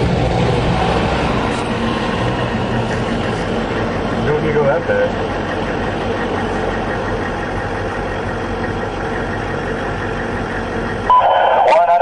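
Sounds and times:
military vehicle engine rumble: 0:00.0 - 0:12.0
road noise: 0:00.0 - 0:12.0.

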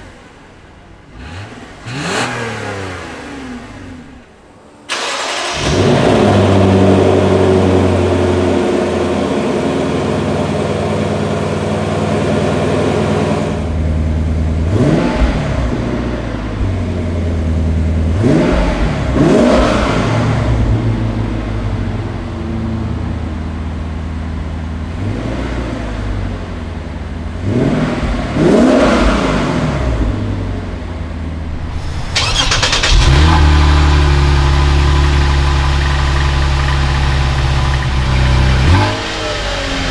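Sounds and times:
car engine revving: 0:00.0 - 0:39.9
car engine idling: 0:06.9 - 0:19.4, 0:20.0 - 0:25.2, 0:29.5 - 0:39.9.

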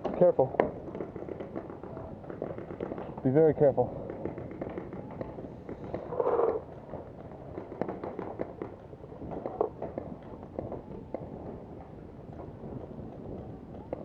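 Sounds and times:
paintball markers firing: 0:00.0 - 0:06.8, 0:07.5 - 0:10.0.

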